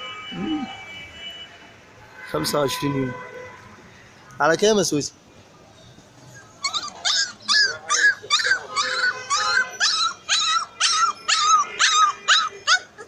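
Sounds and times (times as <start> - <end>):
puppy yelping: 6.3 - 13.0.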